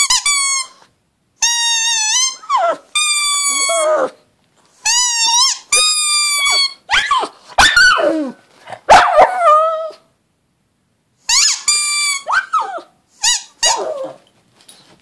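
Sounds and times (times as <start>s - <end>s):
dog howling: 6.3s - 10.1s.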